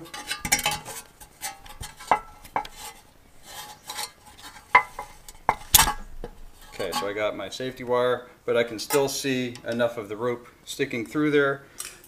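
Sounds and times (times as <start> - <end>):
scraping and rattling of parts: 0.0 - 7.3.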